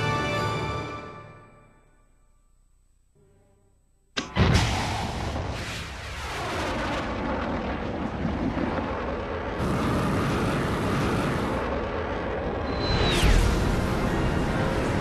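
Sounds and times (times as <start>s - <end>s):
rocket engine roar: 4.4s - 15.0s.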